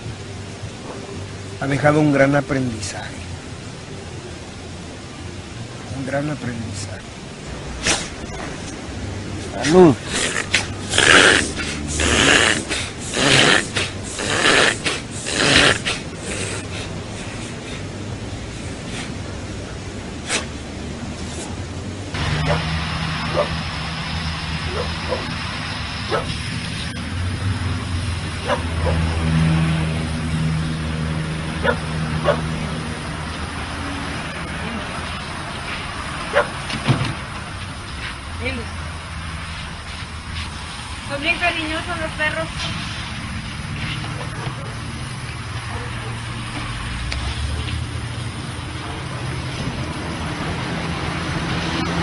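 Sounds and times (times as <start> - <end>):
dog breathing hard: 10.0 - 18.0
dog yipping: 23.3 - 23.5, 24.7 - 25.3, 26.1 - 26.4.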